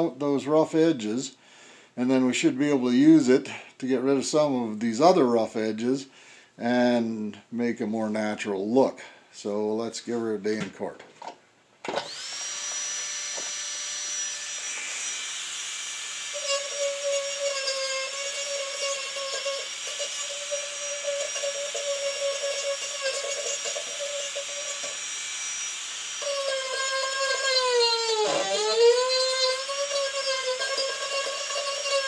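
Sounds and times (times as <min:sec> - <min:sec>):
rotary tool high whine: 0:11.9 - 0:32.0
burr grinding wood: 0:12.0 - 0:32.0.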